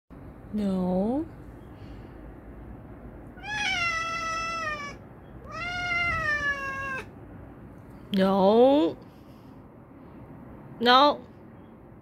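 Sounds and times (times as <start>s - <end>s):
cat meowing loudly: 3.4s - 7.1s.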